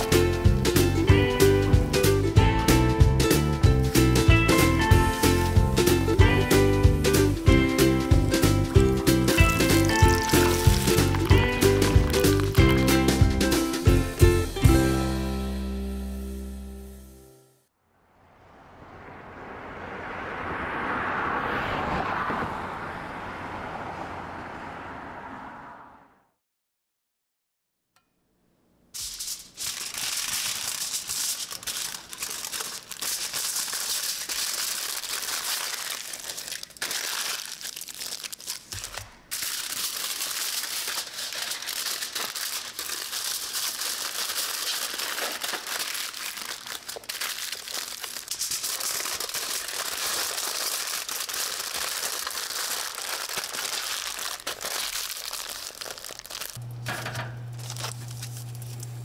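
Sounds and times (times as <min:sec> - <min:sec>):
crinkling and rustling: 0:09.4 - 0:13.1, 0:29.0 - 0:59.0.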